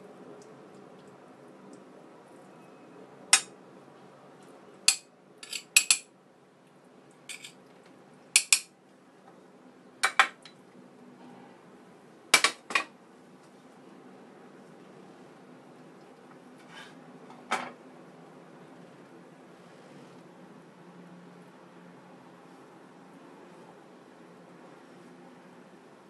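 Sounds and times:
knife clinking on ceramic plate: 4.9 - 6.0, 7.3 - 7.6.

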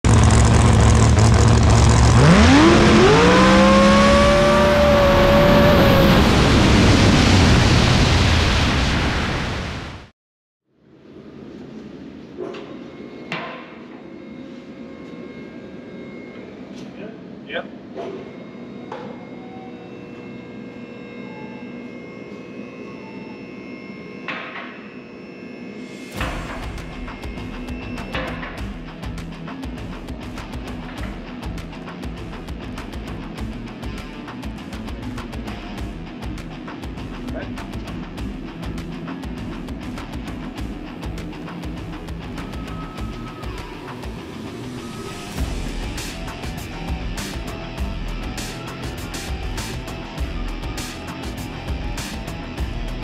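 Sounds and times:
car engine idling and revving: 0.0 - 7.3, 26.8 - 53.0
steady rushing noise: 0.1 - 10.1.

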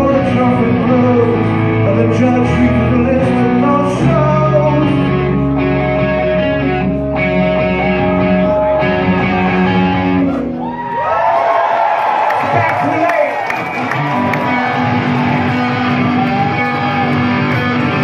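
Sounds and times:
person singing: 0.0 - 6.7
live rock band: 0.0 - 11.0, 11.6 - 18.0.

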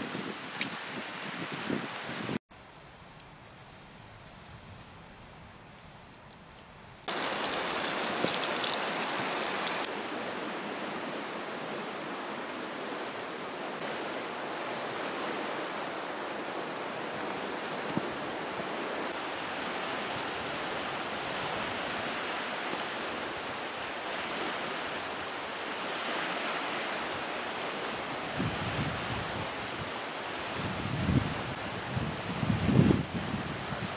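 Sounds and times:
strong wind: 0.0 - 2.4, 7.0 - 33.9
waves washing against shore: 7.1 - 33.9.

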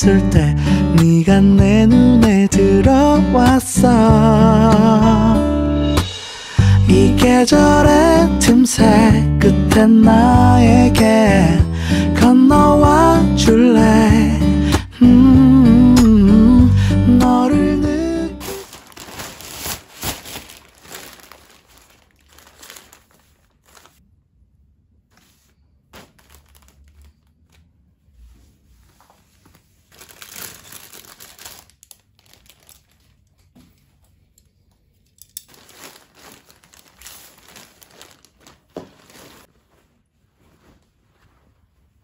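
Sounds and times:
plastic mailer bag crinkling: 18.0 - 24.0, 25.2 - 27.6, 29.4 - 33.5, 35.4 - 39.6.

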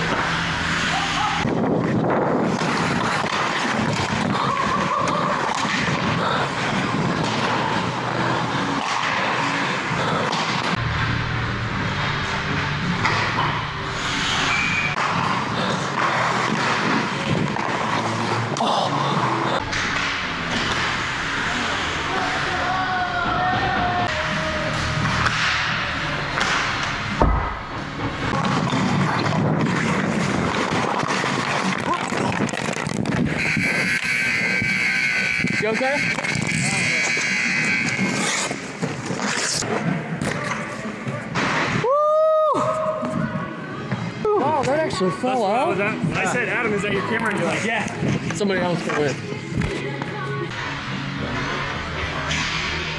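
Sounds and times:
skate blades scraping ice: 0.0 - 11.0, 12.5 - 22.5, 28.0 - 40.8.

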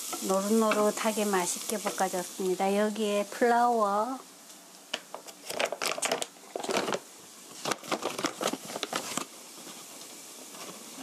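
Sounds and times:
plastic bag crinkling: 5.3 - 9.3.

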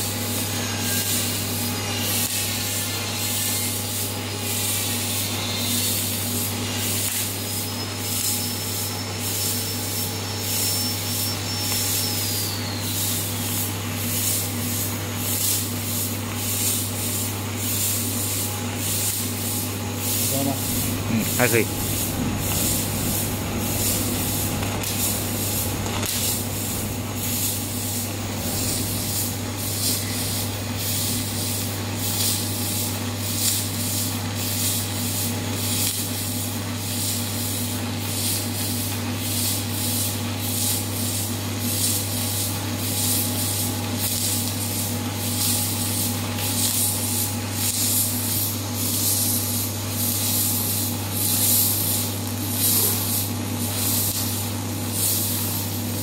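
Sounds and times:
welding arc crackling hiss: 0.0 - 56.0
low hum: 20.1 - 31.4.

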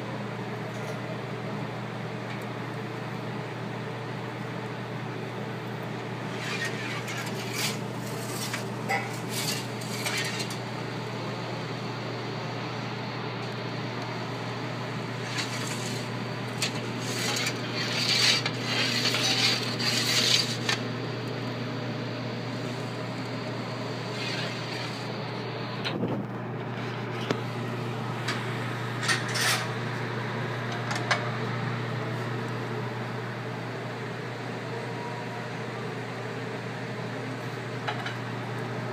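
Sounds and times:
steady low hum: 0.0 - 38.9
metal and dishes clattering: 8.4 - 10.6.

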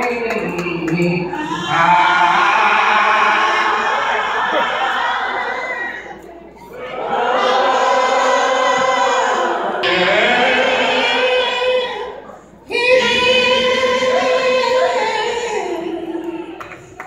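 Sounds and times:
woman singing gospel: 9.9 - 17.0.

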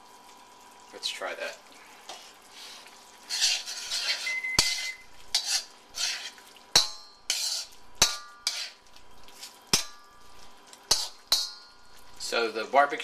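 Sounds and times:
spoon stirring sauce in wok: 3.1 - 12.2
spoon clinking against wok: 3.9 - 5.7, 6.8 - 8.8, 10.9 - 12.0.

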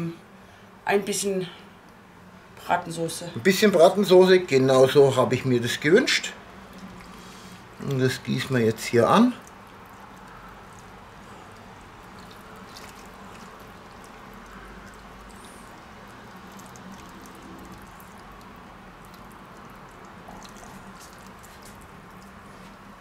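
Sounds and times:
broth trickling and dripping: 5.6 - 23.0.

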